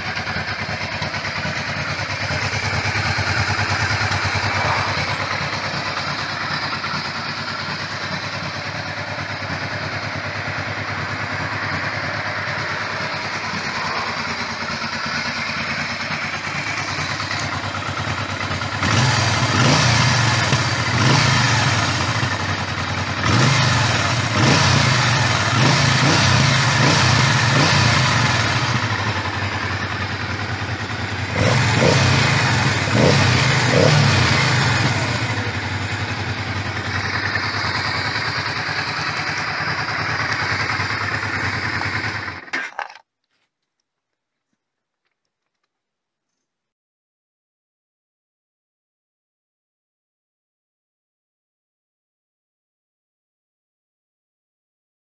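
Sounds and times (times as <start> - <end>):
motorcycle engine idling: 0.0 - 43.0.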